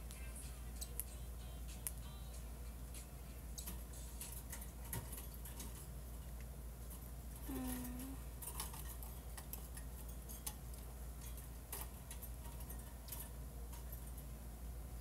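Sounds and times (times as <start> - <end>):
low voice hum: 7.4 - 8.4.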